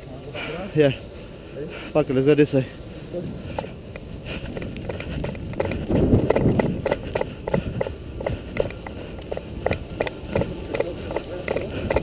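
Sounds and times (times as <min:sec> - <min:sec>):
footsteps on wet concrete: 0:03.4 - 0:12.0.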